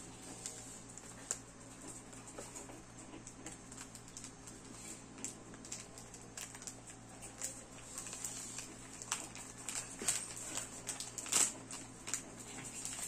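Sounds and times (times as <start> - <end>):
plastic bag crinkling: 3.1 - 13.0.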